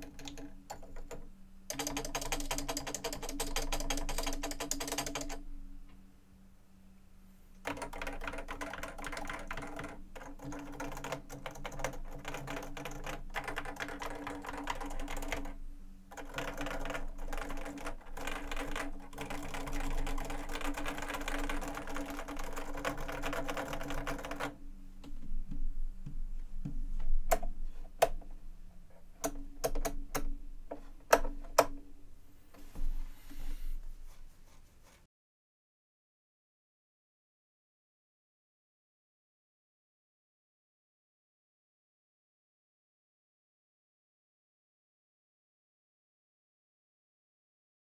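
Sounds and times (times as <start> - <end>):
fast keyboard typing: 0.0 - 5.4, 7.6 - 24.6.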